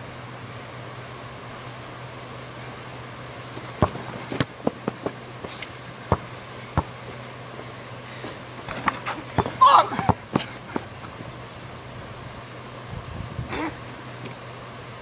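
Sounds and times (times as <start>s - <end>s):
steady low hum: 0.0s - 15.0s
basketball bouncing and hitting hoop: 3.6s - 7.2s, 8.6s - 10.9s.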